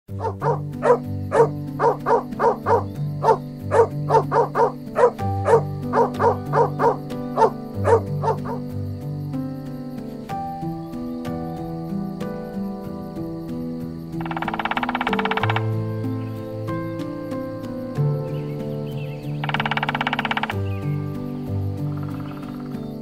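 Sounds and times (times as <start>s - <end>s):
dog barking rapidly: 0.1s - 8.7s
background music: 0.1s - 23.0s.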